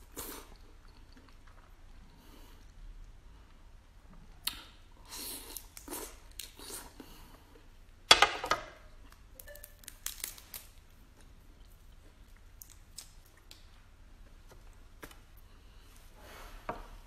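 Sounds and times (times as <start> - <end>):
prawn shells crackling and tearing: 9.4 - 10.8.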